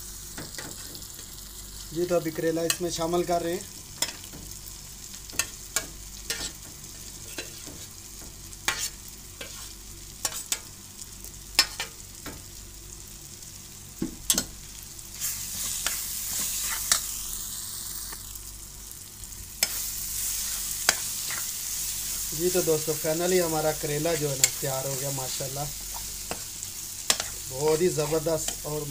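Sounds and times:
food sizzling in a pan: 0:00.0 - 0:28.9.

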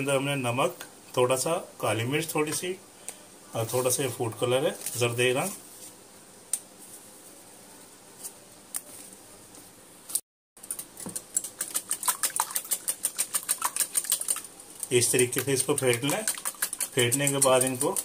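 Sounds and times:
fork beating eggs in a bowl: 0:10.6 - 0:18.0.

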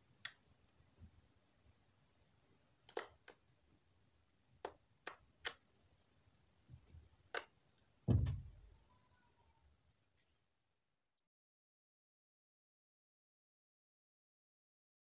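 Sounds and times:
low thump of slime: 0:08.1 - 0:08.6.

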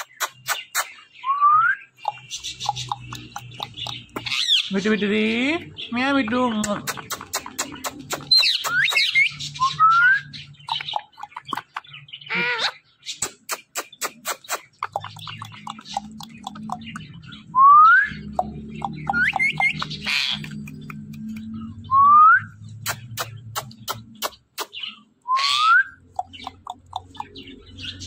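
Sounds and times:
parakeet harsh chatter: 0:00.0 - 0:01.1, 0:02.0 - 0:05.1, 0:05.8 - 0:09.6, 0:10.4 - 0:17.2, 0:18.4 - 0:20.8
parakeet clicks: 0:02.0 - 0:04.6, 0:06.5 - 0:09.2, 0:10.6 - 0:11.8, 0:13.2 - 0:17.2, 0:18.2 - 0:21.6, 0:22.8 - 0:24.8, 0:26.0 - 0:27.7.

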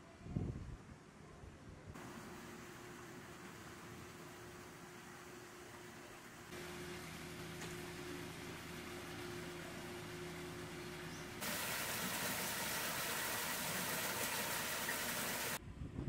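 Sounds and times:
shallow stream running: 0:02.0 - 0:06.8, 0:11.4 - 0:15.6
water pouring into pond: 0:11.4 - 0:15.6.

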